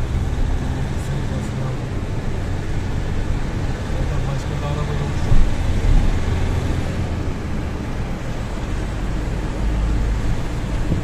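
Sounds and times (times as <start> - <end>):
car road rumble: 0.0 - 11.0
tyre and wind noise: 10.2 - 11.0.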